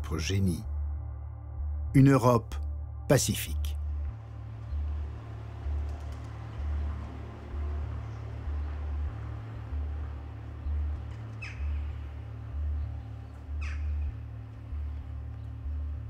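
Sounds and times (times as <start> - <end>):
low pulsing drone: 0.0 - 16.0
downward sweeping squawks: 5.5 - 14.8.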